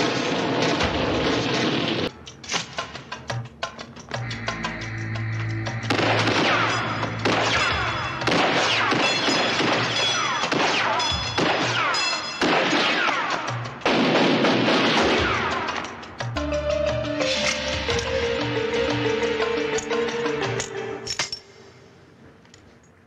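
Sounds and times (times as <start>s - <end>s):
loud gunfire blasts: 5.9s - 15.8s.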